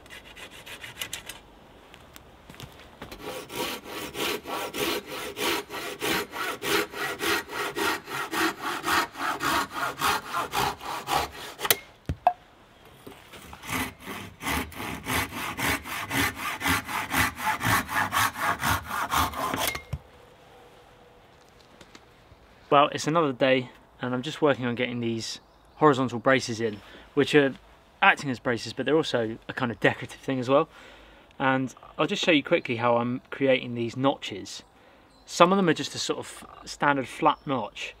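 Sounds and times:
pruning saw cutting wood: 0.0s - 1.4s, 3.0s - 11.9s, 13.4s - 20.0s.

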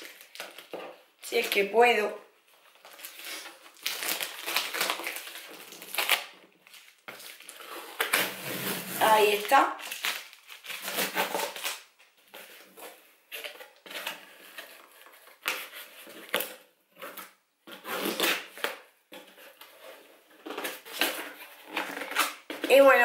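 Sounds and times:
packing tape tearing: 2.8s - 18.8s, 20.4s - 22.7s.

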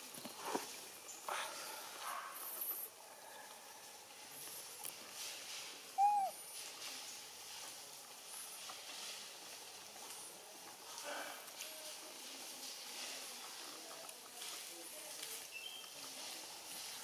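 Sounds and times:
hooting animal call: 6.0s - 6.4s.

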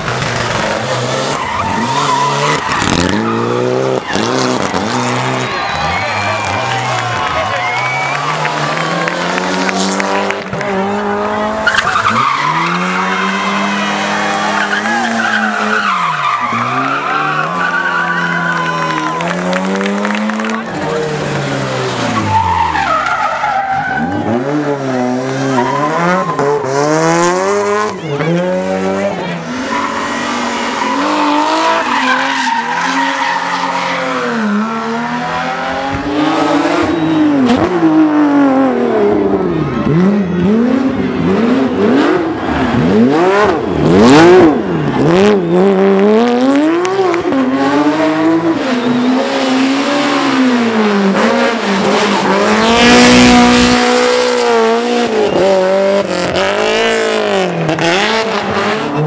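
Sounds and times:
rally car engine revving: 0.0s - 59.0s
tyres squealing: 11.6s - 19.5s.

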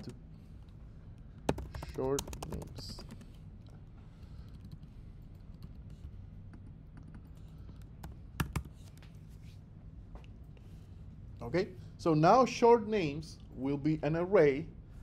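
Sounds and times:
faint low hum: 0.0s - 15.0s
computer keyboard typing: 1.4s - 3.4s, 4.4s - 8.8s.

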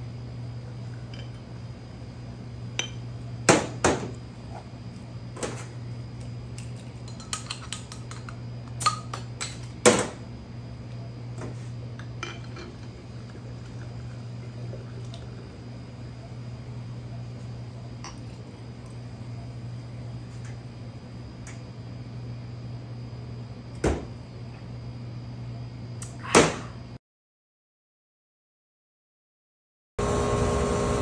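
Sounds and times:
steady low hum: 0.0s - 27.0s
glass bottles and metal clinking: 12.3s - 12.8s.

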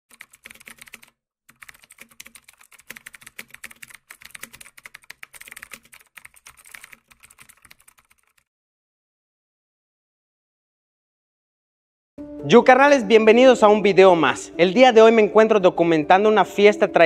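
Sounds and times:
keyboard typing clicks: 0.1s - 8.4s.

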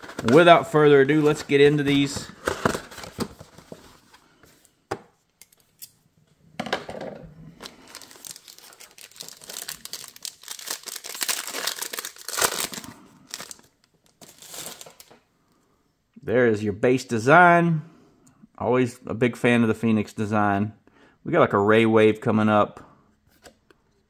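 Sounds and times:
foil pack crinkling and tearing: 7.6s - 15.2s.

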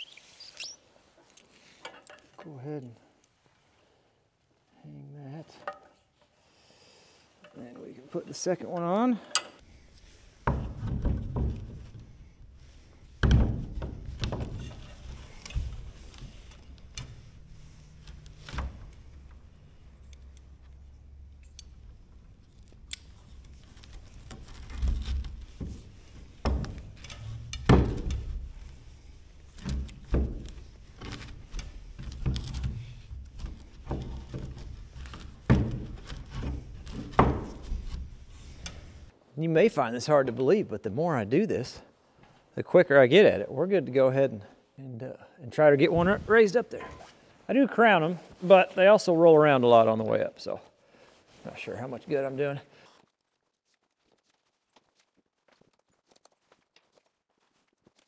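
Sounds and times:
rope being handled: 9.7s - 39.1s, 52.8s - 58.0s.

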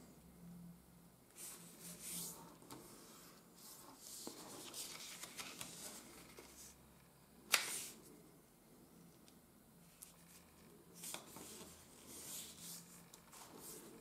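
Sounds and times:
paper rustling and crackling: 4.0s - 6.7s.

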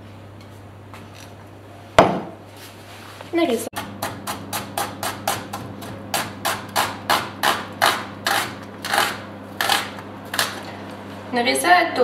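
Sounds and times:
knife slicing onion on board: 3.8s - 10.6s.

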